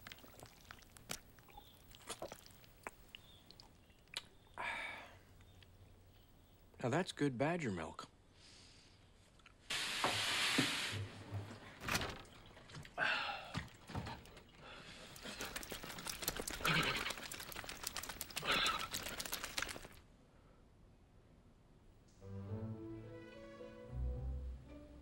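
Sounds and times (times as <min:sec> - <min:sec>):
burst of hissing: 0:09.7 - 0:11.0
water spattering and flapping: 0:13.6 - 0:20.0.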